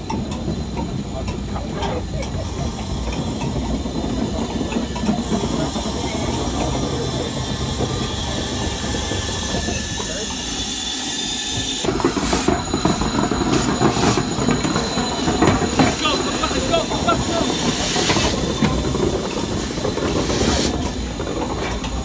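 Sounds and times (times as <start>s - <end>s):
steam hissing: 0.0s - 22.0s
steam locomotive rumble: 0.0s - 22.0s.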